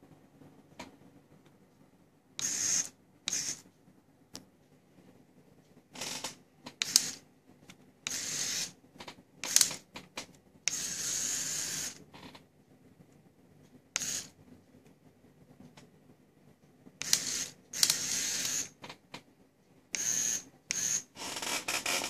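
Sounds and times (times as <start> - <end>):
toy motors and gears whirring: 2.4 - 3.7, 6.0 - 7.2, 8.0 - 8.8, 9.4 - 9.8, 10.6 - 12.0, 14.0 - 14.3, 17.0 - 18.8, 19.9 - 22.0.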